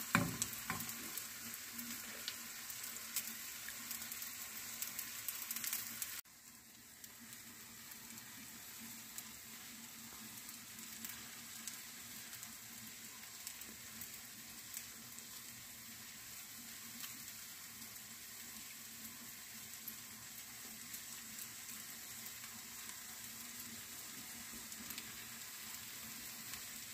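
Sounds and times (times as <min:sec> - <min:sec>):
food sizzling in a pan: 0:00.0 - 0:26.9.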